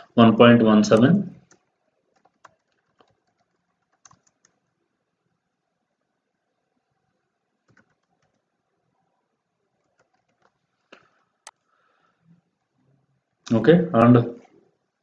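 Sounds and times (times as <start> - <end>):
faint keyboard keystrokes: 0.9 - 4.7, 7.6 - 8.5, 9.8 - 11.1.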